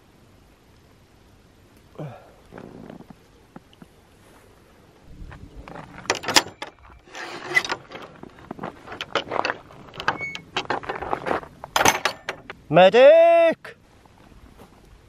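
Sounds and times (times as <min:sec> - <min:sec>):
footsteps on gravel: 0:04.2 - 0:11.8, 0:14.0 - 0:14.8
wooden gate knocking and rattling: 0:06.0 - 0:06.8, 0:07.4 - 0:12.6.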